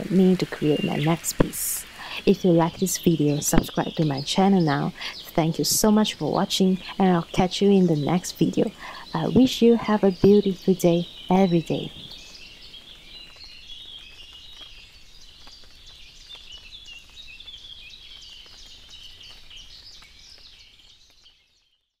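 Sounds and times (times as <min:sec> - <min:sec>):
small birds chirping: 0:00.0 - 0:21.9.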